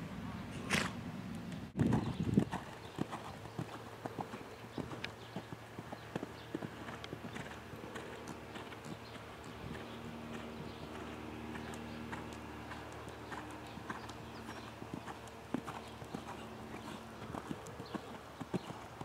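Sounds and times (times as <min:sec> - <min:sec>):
horse hoofbeats on sand: 0:01.8 - 0:19.0.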